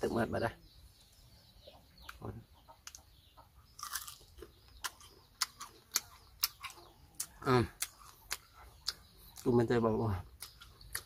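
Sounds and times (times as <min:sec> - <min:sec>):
crunchy chewing: 0:02.8 - 0:11.0.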